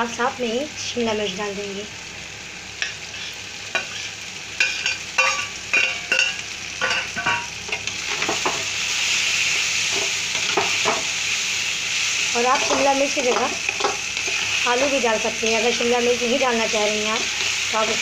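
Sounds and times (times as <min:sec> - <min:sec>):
vegetables sizzling in oil: 0:00.0 - 0:18.0
metal spatula clinking on pan: 0:04.6 - 0:07.5.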